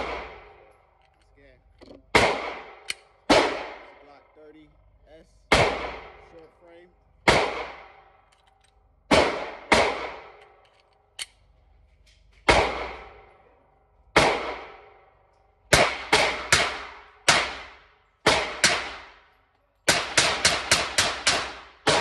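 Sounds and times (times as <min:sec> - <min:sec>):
pistol shots indoors: 0:02.1 - 0:03.9, 0:09.1 - 0:10.6, 0:12.4 - 0:13.4, 0:14.1 - 0:15.0, 0:19.9 - 0:22.0.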